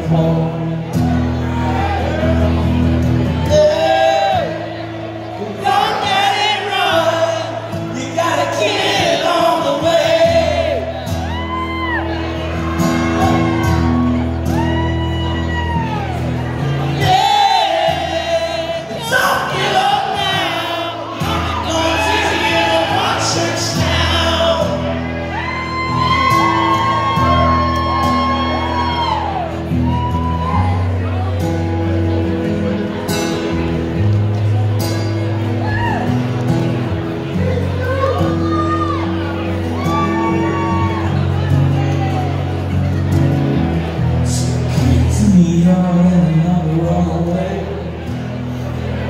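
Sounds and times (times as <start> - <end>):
man singing with vibrato: 0.0 - 1.9, 3.4 - 11.2, 16.6 - 25.3, 44.2 - 48.4
strummed acoustic guitar: 0.0 - 49.0.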